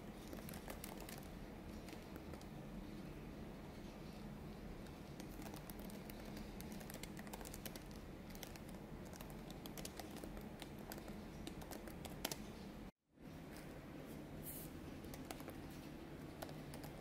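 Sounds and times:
laptop keyboard typing: 0:00.0 - 0:02.6, 0:04.8 - 0:12.5, 0:15.0 - 0:17.0.

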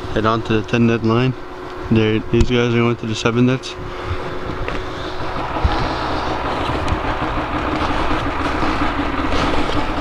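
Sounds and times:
snowmobile engine running: 0:03.9 - 0:10.0.

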